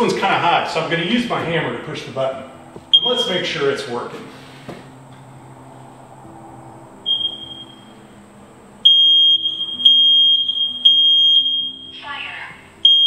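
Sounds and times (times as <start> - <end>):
high-pitched alarm beeps: 2.9 - 3.3, 7.0 - 8.0, 8.8 - 12.1.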